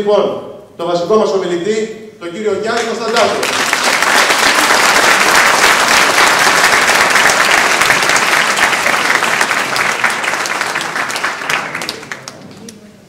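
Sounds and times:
audience applauding: 0:02.8 - 0:12.8.

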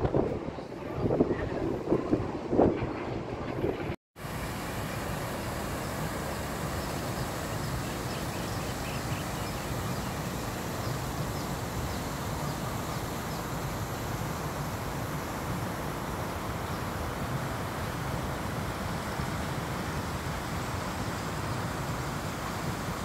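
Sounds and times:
wind buffeting the microphone: 0:00.0 - 0:04.0
outdoor background noise: 0:00.0 - 0:23.0.

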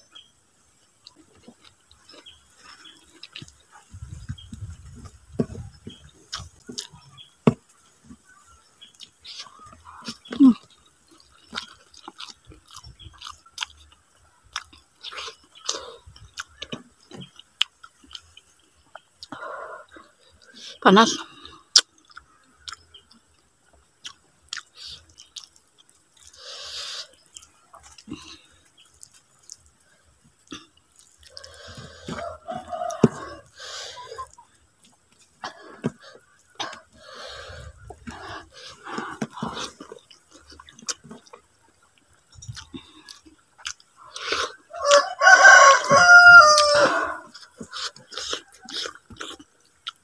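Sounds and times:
person chewing with mouth clicks: 0:01.0 - 0:07.3, 0:08.2 - 0:45.1, 0:46.6 - 0:50.0
chickens clucking: 0:01.2 - 0:20.2, 0:30.5 - 0:49.9
rooster crowing: 0:31.8 - 0:33.6, 0:44.7 - 0:47.4.

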